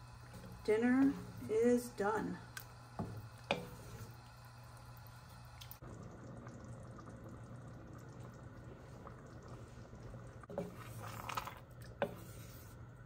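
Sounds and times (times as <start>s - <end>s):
chili simmering in a pot: 0.0s - 13.0s
low steady hum: 0.0s - 13.0s
wooden spoon stirring chili: 10.4s - 13.0s.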